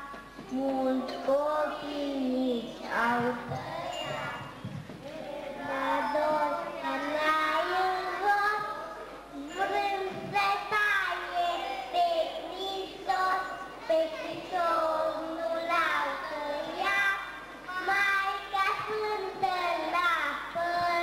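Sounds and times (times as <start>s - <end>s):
children singing together: 0.0s - 21.0s.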